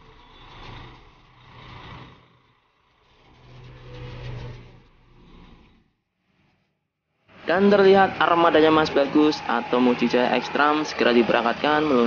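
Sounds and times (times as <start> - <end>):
vehicle engines passing by: 0.0 - 6.0, 7.3 - 12.0.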